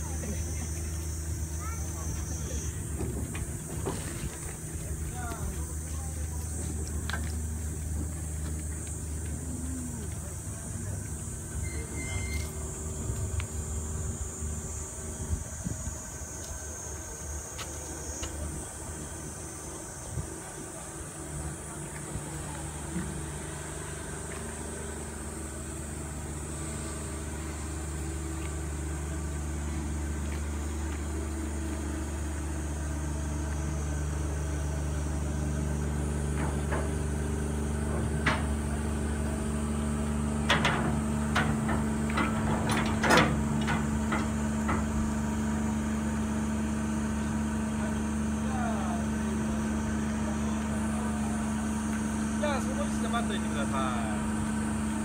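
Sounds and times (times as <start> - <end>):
turntable low rumble: 0.0 - 55.0.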